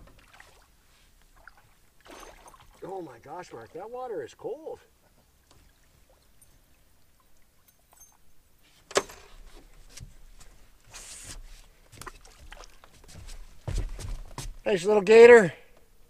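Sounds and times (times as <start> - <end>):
fish splashing: 0.1 - 3.0, 12.0 - 13.0
dripping water: 5.1 - 8.3.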